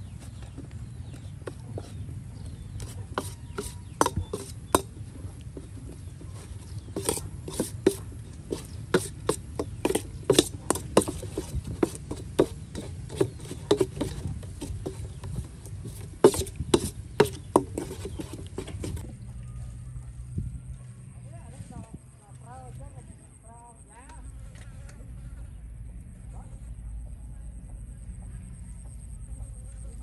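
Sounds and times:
metal spoon scraping steel bowl: 2.7 - 19.0.

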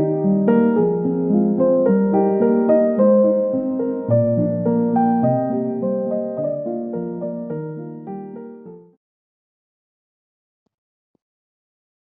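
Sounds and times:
gentle piano notes: 0.0 - 9.0.

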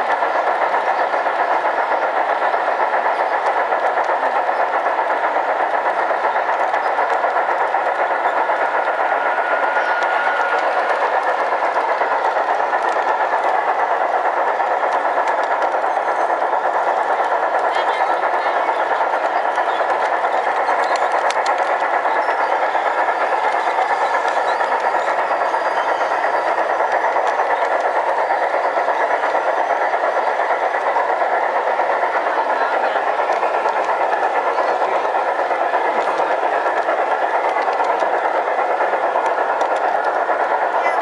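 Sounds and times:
model trains rolling on track: 0.0 - 41.0.

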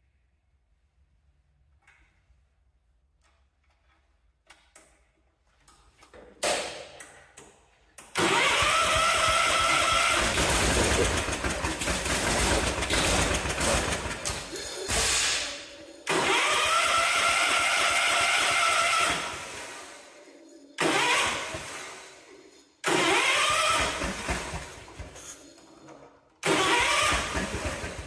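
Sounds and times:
tractor engine cranking and running: 8.0 - 19.9, 20.7 - 28.0.

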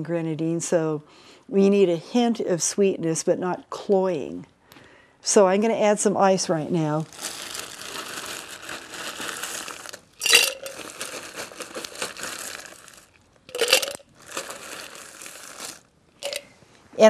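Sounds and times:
ice crunching and rattling: 7.1 - 16.5
ice clinking into metal shaker: 10.2 - 16.5.

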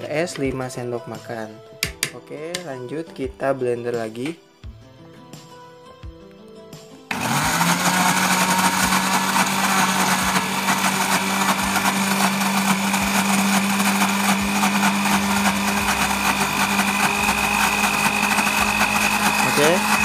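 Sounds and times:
blender running: 7.1 - 20.0.

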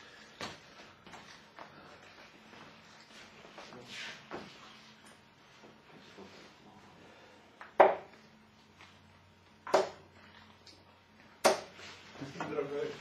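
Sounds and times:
darts thudding into dartboard: 7.7 - 8.1, 9.6 - 10.0, 11.4 - 11.8.

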